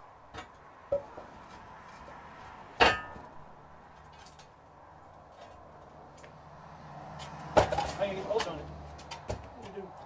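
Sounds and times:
steel bar clanking: 2.8 - 3.3.

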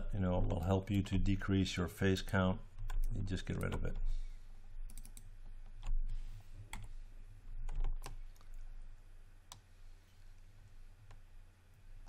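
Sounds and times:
low steady hum: 0.0 - 12.0
keyboard and mouse clicks: 4.9 - 6.0, 7.6 - 8.6.

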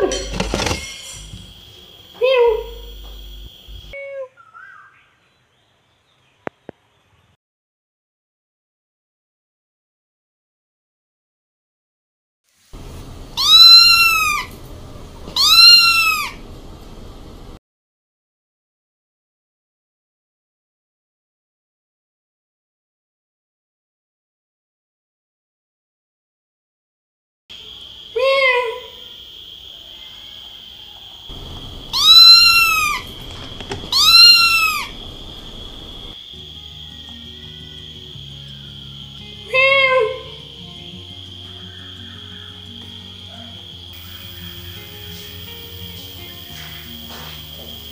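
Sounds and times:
kitten meowing: 13.4 - 14.5, 15.4 - 16.4, 31.4 - 36.1.

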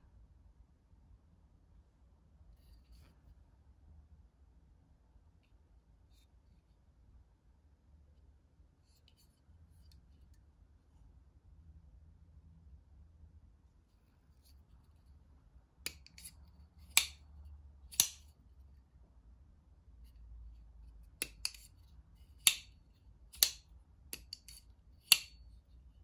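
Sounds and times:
light clicks of knife lock: 15.9 - 17.2, 21.2 - 21.7
knife blade snapping open and shut: 15.9 - 17.3, 17.9 - 18.3, 21.2 - 21.7, 22.4 - 23.6, 24.2 - 25.4.

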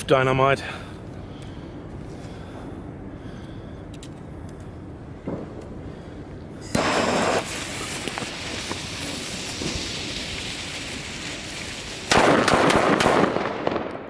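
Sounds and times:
firecrackers banging: 5.2 - 6.0, 6.6 - 14.0
gas torch lighter hissing: 6.8 - 9.3
fuses sputtering and hissing: 6.8 - 12.1.

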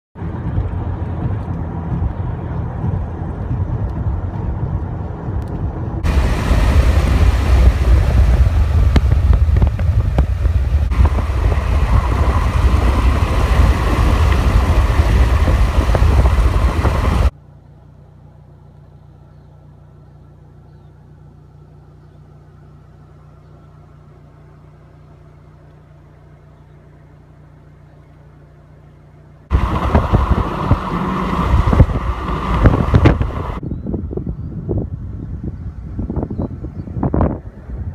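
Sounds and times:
road and engine noise: 0.0 - 37.9
wind buffeting microphone: 0.2 - 17.3, 29.5 - 37.9.

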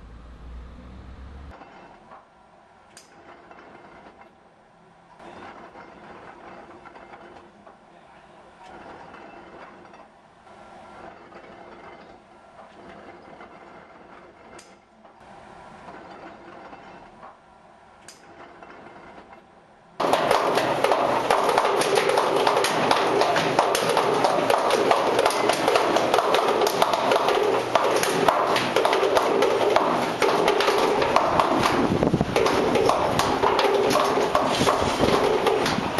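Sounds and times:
hard balls clattering in a machine: 20.0 - 35.9.

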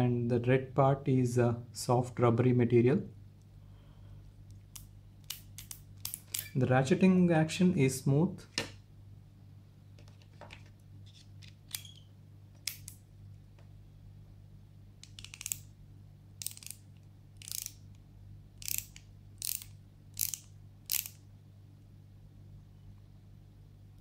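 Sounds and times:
screwdriver ratchet clicking: 4.7 - 6.6, 15.0 - 15.7, 16.4 - 16.8, 17.4 - 17.8, 18.6 - 21.2.

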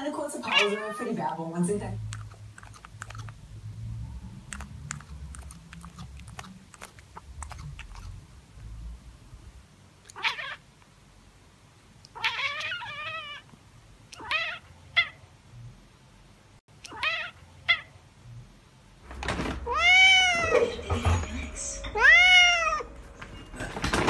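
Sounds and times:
cat meowing: 0.4 - 1.2, 10.0 - 10.6, 12.1 - 13.5, 14.1 - 15.2, 16.8 - 17.9, 19.6 - 20.6, 22.0 - 22.9
low rumble: 3.2 - 6.4.

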